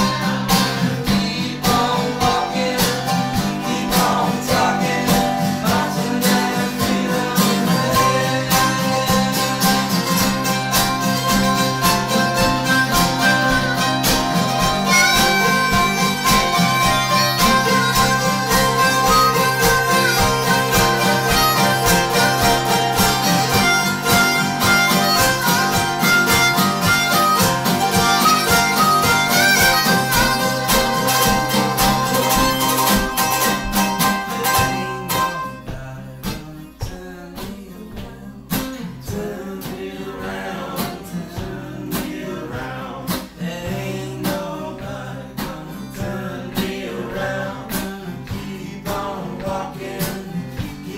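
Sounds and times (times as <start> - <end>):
harmonica melody: 0.0 - 36.0, 39.8 - 45.0
mandolin: 0.0 - 36.8
strummed guitars: 0.0 - 50.9.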